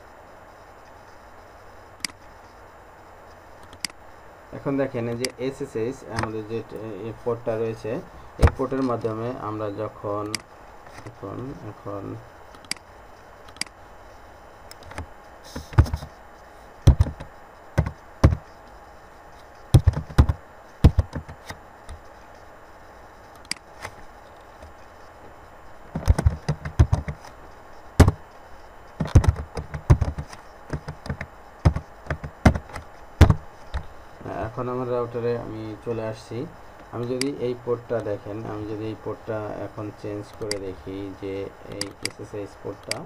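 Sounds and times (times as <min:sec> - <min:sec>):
mouse clicks: 0:13.5 - 0:13.7
keyboard keystrokes: 0:16.9 - 0:18.5, 0:26.0 - 0:27.2, 0:29.0 - 0:33.4.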